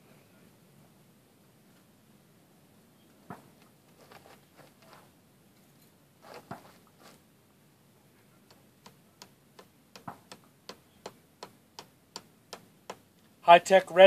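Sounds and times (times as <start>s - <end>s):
sharp evenly spaced ticks: 8.5s - 13.1s.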